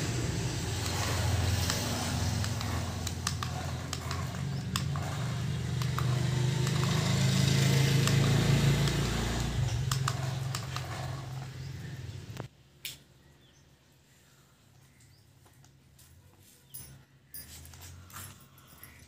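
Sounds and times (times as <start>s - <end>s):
toy car electric motor hum: 0.0s - 12.5s.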